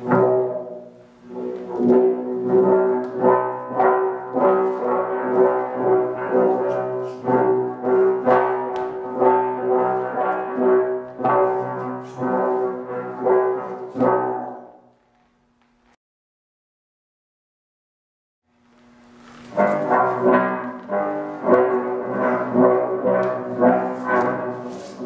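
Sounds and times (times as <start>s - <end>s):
buzzing horn-like drone: 1.3s - 14.7s, 19.5s - 25.0s.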